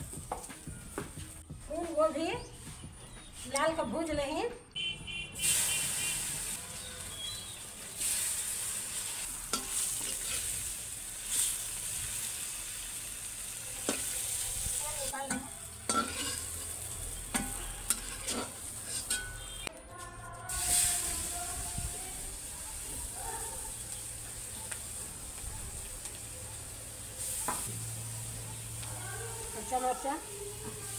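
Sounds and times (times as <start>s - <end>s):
vegetables sizzling in hot oil: 5.4s - 19.2s, 20.5s - 30.9s
metal spatula scraping pan: 9.5s - 10.5s, 15.3s - 16.7s, 17.3s - 19.6s.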